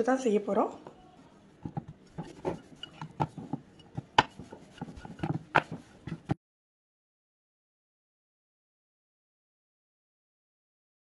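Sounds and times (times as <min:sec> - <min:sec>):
rolling pin clacking on metal plate: 0:01.6 - 0:06.4
rolling pin rolling dough: 0:01.6 - 0:06.4.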